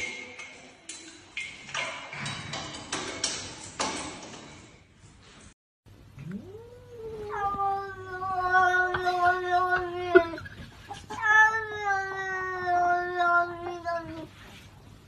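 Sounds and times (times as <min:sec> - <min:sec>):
cat meowing: 0:06.2 - 0:10.4.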